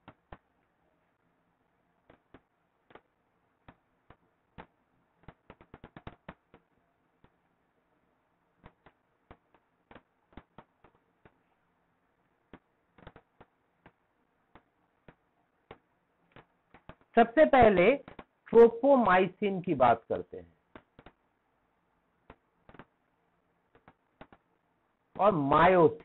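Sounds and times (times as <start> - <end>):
sharp clicks and taps: 12.5 - 18.4, 20.7 - 21.2, 22.2 - 23.0, 23.7 - 24.5.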